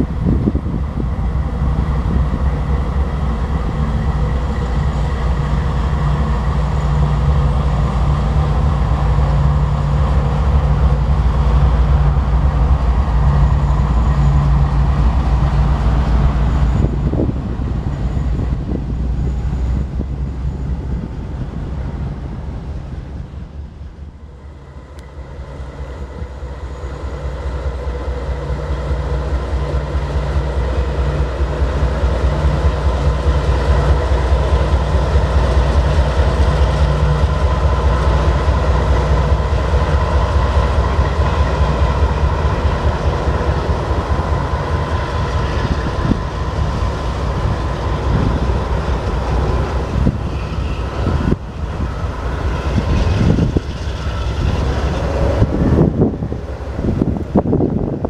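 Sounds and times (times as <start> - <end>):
diesel locomotive engine drone: 0.0 - 58.0
train wheels clicking over rail joints: 26.0 - 58.0.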